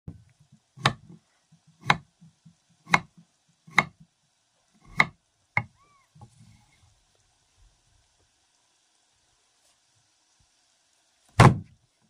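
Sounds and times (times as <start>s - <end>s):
knife chopping on wooden board: 0.8s - 4.0s, 4.8s - 5.2s, 11.4s - 11.7s.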